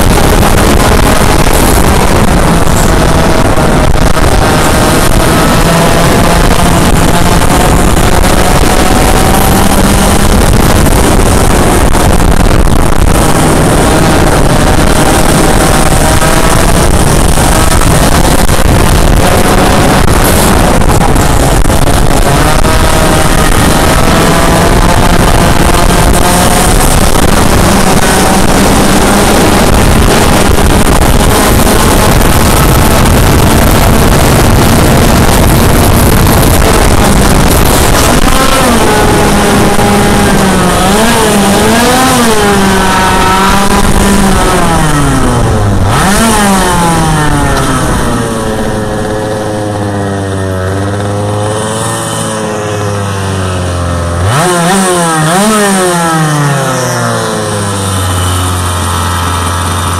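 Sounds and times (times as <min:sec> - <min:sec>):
kart engine running hard: 0:00.0 - 0:59.9.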